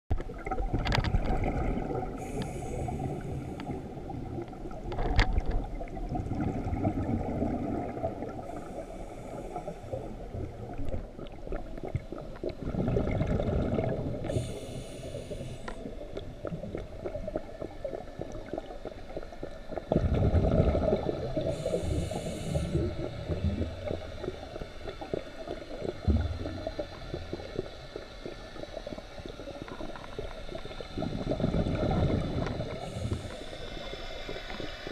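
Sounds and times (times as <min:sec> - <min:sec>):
exhaled air bubbling: 0:00.1 - 0:34.9
regulator inhale hiss: 0:02.1 - 0:04.0, 0:08.4 - 0:10.4, 0:14.2 - 0:16.2, 0:21.4 - 0:25.8, 0:32.5 - 0:34.9.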